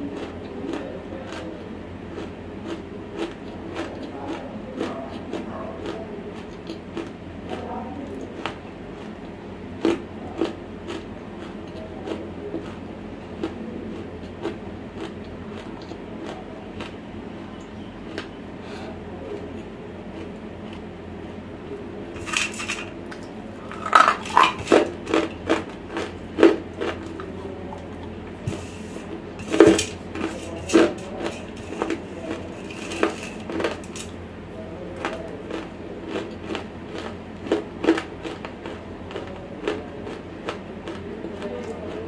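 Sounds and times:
fingers scraping a steel plate: 0:28.5 - 0:34.1.

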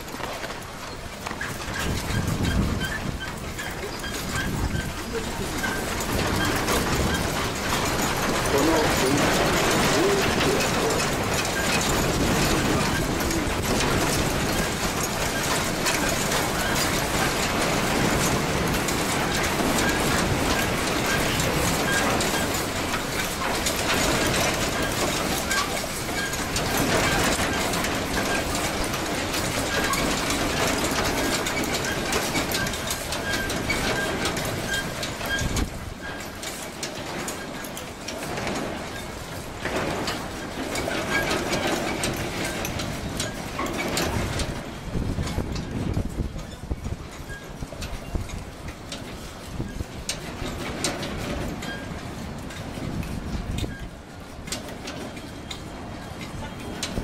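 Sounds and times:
metal structures rattling: 0:00.0 - 0:57.0.

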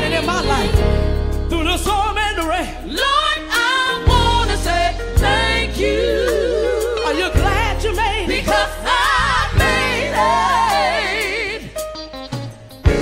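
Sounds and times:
gospel singing with vibrato: 0:00.0 - 0:12.1
bass line: 0:00.0 - 0:13.0
drums: 0:00.0 - 0:13.0
choir harmonies: 0:03.0 - 0:12.1.

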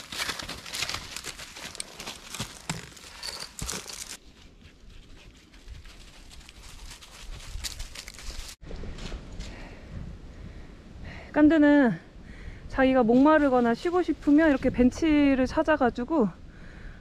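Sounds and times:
footsteps in dry leaves: 0:00.0 - 0:04.4, 0:05.3 - 0:08.6.

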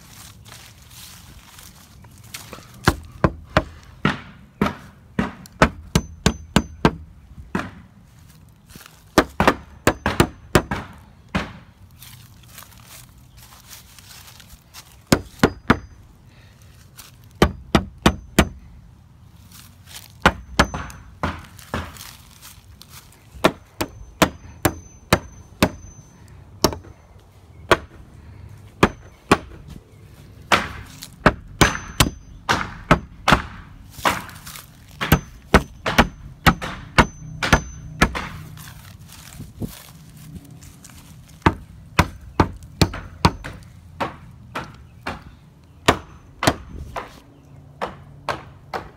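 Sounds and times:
hammer striking nails into wood: 0:02.8 - 0:07.8, 0:09.2 - 0:11.6, 0:17.4 - 0:18.6, 0:20.2 - 0:22.0, 0:23.4 - 0:25.9, 0:30.5 - 0:34.4, 0:35.0 - 0:38.4, 0:41.4 - 0:47.1
high ring of hammer on nail: 0:05.6 - 0:07.0, 0:20.3 - 0:21.4, 0:23.8 - 0:26.0, 0:31.6 - 0:33.5, 0:35.0 - 0:38.4.

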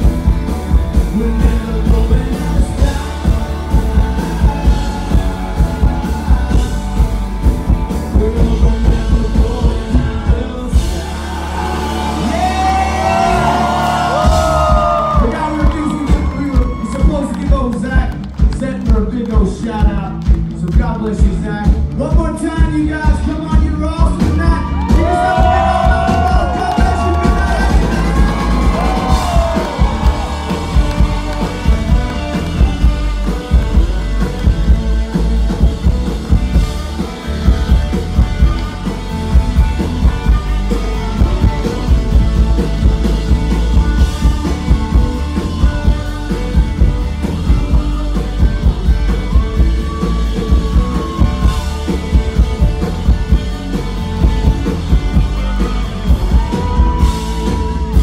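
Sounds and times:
drum kit beat: 0:00.0 - 0:58.0
electric bass: 0:00.0 - 0:58.0.

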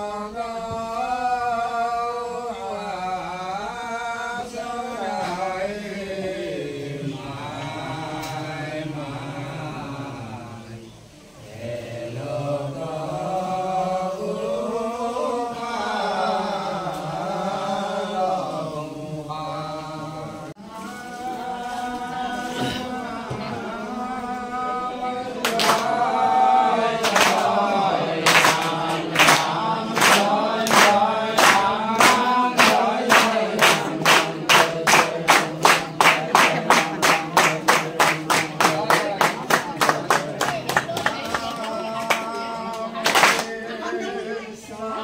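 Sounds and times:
group chanting in unison: 0:00.0 - 0:45.0
hand claps keeping time: 0:25.4 - 0:26.0, 0:27.0 - 0:27.6, 0:28.2 - 0:43.5.

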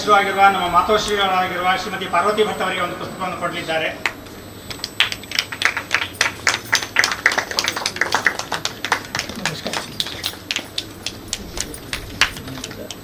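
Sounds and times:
audience applause: 0:05.0 - 0:12.8.

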